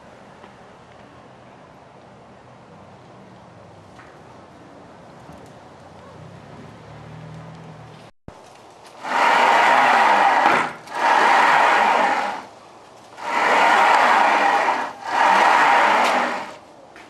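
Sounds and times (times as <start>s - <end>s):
bearings rolling on steel rods: 9.0s - 12.5s, 13.1s - 16.6s.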